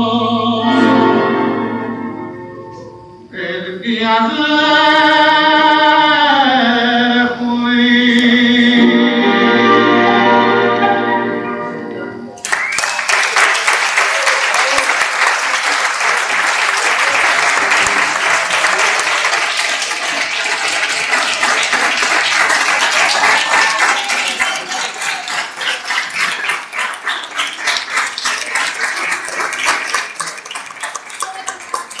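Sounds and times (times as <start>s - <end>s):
audience applauding: 12.4s - 32.0s.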